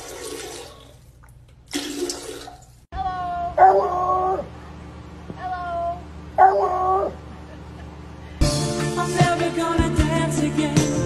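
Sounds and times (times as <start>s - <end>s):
toilet water rushing: 0.0s - 2.8s
dog howling: 3.6s - 4.5s, 5.6s - 7.2s.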